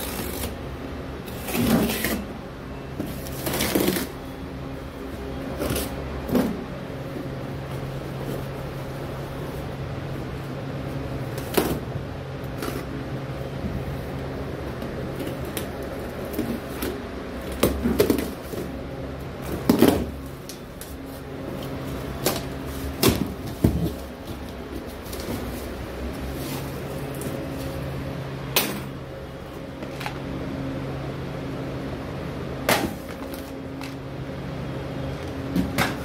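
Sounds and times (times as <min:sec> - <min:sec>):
box cutter cutting cardboard: 0:00.0 - 0:00.6, 0:01.3 - 0:02.3
steady electrical hum: 0:00.0 - 0:36.0.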